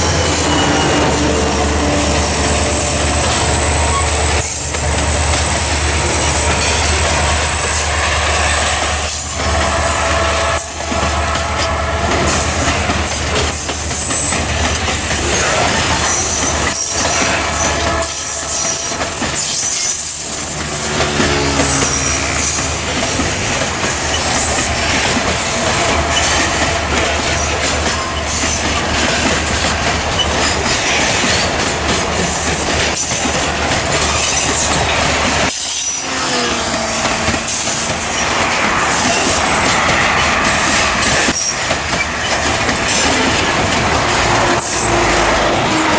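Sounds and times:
wheels squealing shrilly: 0.0 - 8.0
diesel locomotive rumble: 0.0 - 45.9
wagon wheels clattering on rails: 18.5 - 45.9.

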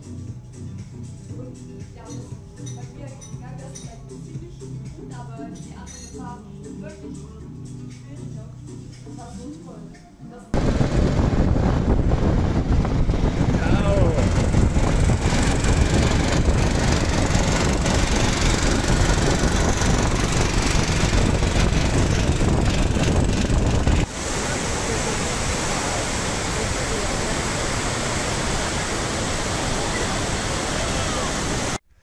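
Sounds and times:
waterfall rushing: 10.6 - 22.6, 23.8 - 31.8
motor engine running: 10.6 - 31.8
wind rumble: 10.6 - 31.8.

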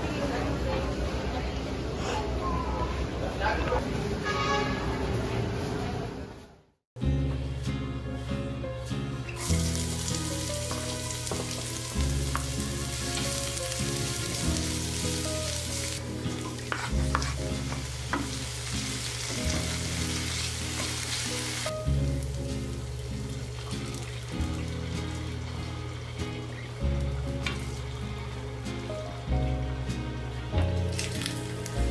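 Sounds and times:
vegetables sizzling in oil: 9.4 - 29.3.

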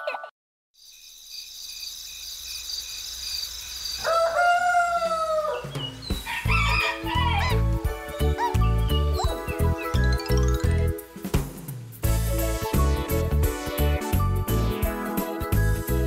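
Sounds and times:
bird chirps: 0.8 - 4.0, 5.5 - 6.6, 8.4 - 10.9
rooster crowing: 4.0 - 7.6
cartoon music with heavy beat: 6.1 - 16.0.

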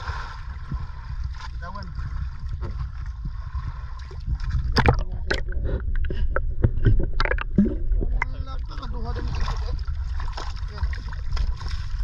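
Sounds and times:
steady low rumble: 0.0 - 12.0
water sloshing and gurgling: 0.0 - 12.0
sharp splashes and knocks: 3.9 - 12.0.

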